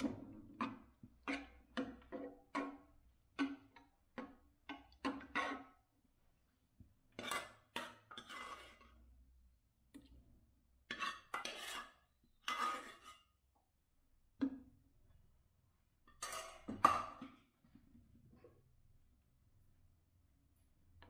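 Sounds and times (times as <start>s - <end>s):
metal spoon scraping cooking pot: 0.1s - 3.8s, 4.7s - 5.8s, 7.1s - 9.0s, 10.8s - 13.4s, 16.1s - 17.3s.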